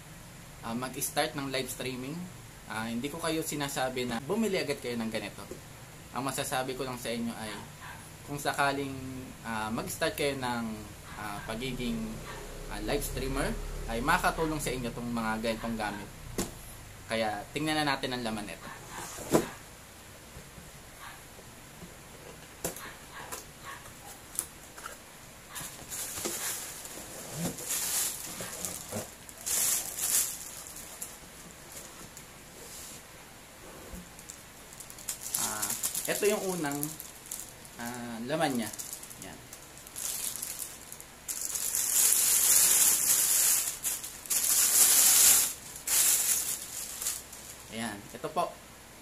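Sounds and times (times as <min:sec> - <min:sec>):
plastic rustling and scraping: 0:23.8 - 0:47.8
plastic bag crinkling: 0:25.5 - 0:32.2, 0:34.1 - 0:47.8.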